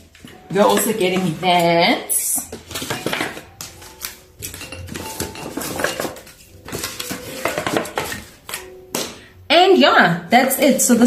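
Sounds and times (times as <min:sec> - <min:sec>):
glass bottles clinking: 0:02.5 - 0:03.8, 0:04.4 - 0:08.2.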